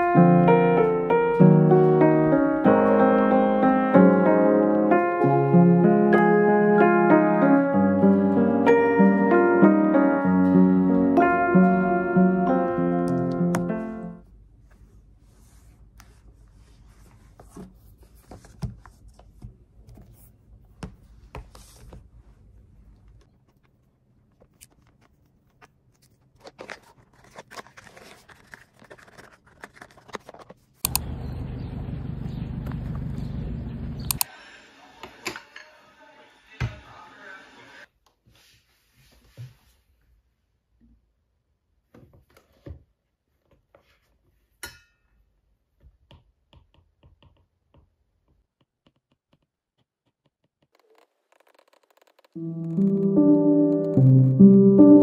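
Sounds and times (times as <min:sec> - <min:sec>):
piano music: 0:00.0 - 0:14.2, 0:52.4 - 0:55.0
loud low outdoor rumble: 0:31.0 - 0:34.1.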